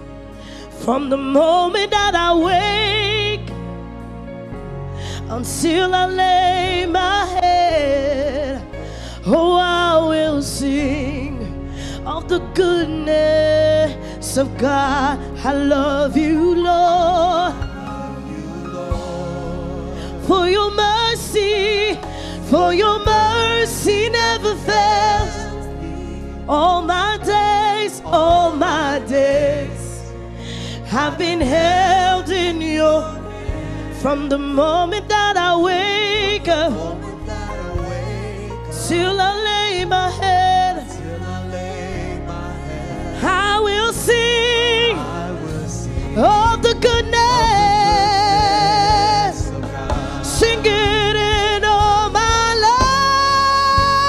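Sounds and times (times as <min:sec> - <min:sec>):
band accompaniment: 0:14.4 - 0:54.0
person singing with vibrato: 0:30.8 - 0:54.0.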